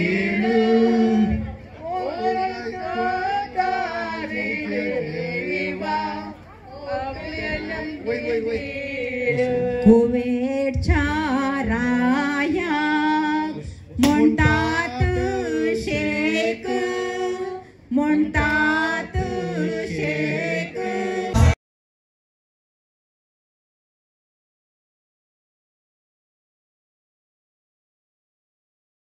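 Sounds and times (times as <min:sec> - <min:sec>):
voices singing: 0:00.0 - 0:21.6
low thumps: 0:09.4 - 0:12.7, 0:13.6 - 0:16.9, 0:21.4 - 0:21.6.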